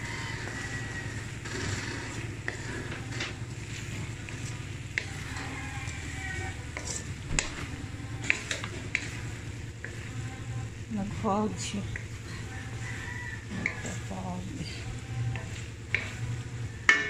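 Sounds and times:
food sizzling in pan: 0.0 - 17.0
steady low hum: 0.0 - 17.0
wooden spatula scraping pan: 0.0 - 17.0
spatula knocking on pan: 3.9 - 11.2, 11.9 - 14.2, 14.8 - 17.0.

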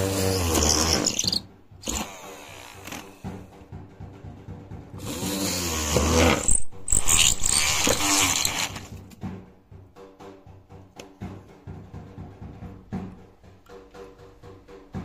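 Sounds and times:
drill motor whine: 0.0 - 3.0, 5.0 - 8.9
drill bit cutting wood: 0.0 - 3.1, 5.0 - 8.9.

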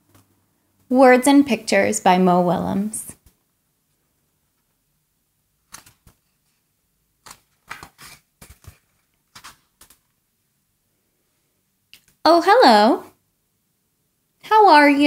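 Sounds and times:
book pages rustling: 5.6 - 10.2.

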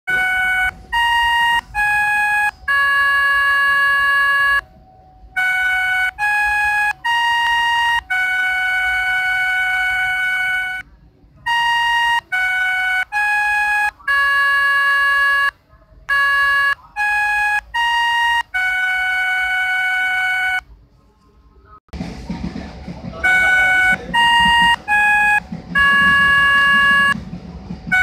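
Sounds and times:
melodica app chime melody: 0.1 - 4.6, 5.4 - 10.8, 16.1 - 20.6, 23.3 - 27.2.

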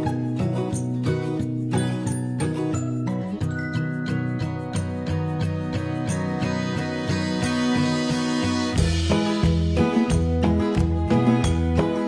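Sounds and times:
instrumental background music: 0.0 - 12.0.

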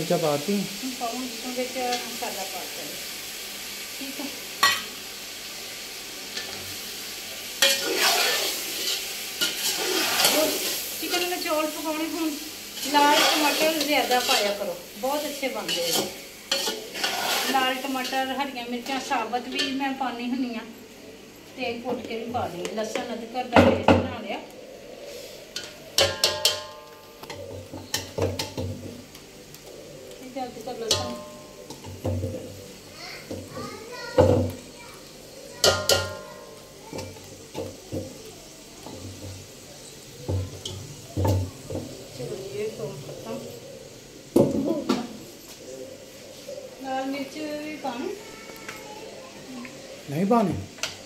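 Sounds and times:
food sizzling in a pot: 0.0 - 51.0
spoon stirring and scraping: 7.6 - 11.4, 12.7 - 14.7, 15.4 - 18.3
metal spoon knocking pot: 26.0 - 26.8.

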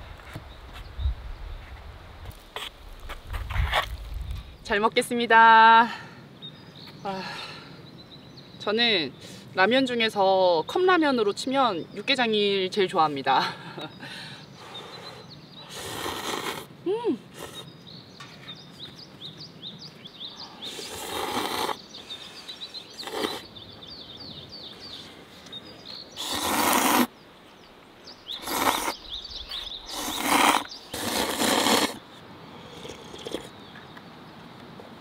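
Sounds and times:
small birds chirping: 2.4 - 34.6
person slurping noodles: 15.7 - 16.7, 20.7 - 21.8, 23.0 - 23.5, 26.2 - 27.1, 28.4 - 29.0, 29.9 - 32.0, 32.7 - 33.5.

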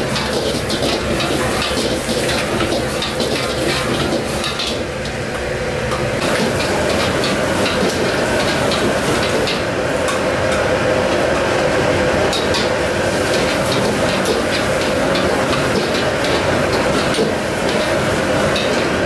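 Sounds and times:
utensil clinking against wok: 0.0 - 4.9
food sizzling in a wok: 0.0 - 5.0, 6.1 - 10.8, 12.3 - 19.0
gas flame roar: 0.0 - 19.0.

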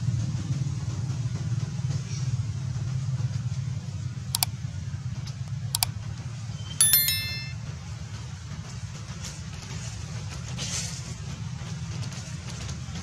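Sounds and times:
bright bell chime: 6.8 - 7.6.

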